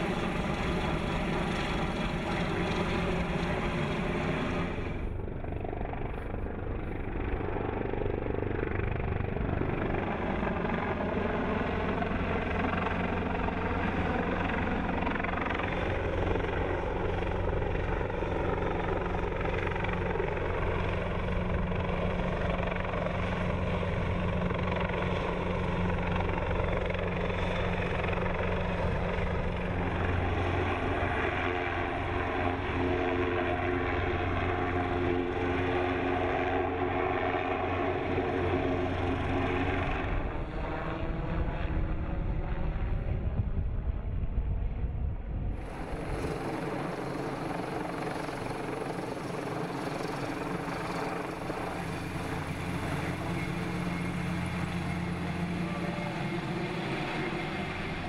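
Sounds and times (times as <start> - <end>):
helicopter hovering: 0.0 - 58.0.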